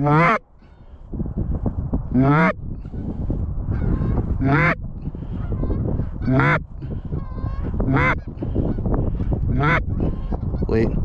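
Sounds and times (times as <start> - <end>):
goose honking: 0.0 - 0.4, 3.7 - 6.6, 7.2 - 8.8, 9.5 - 10.7.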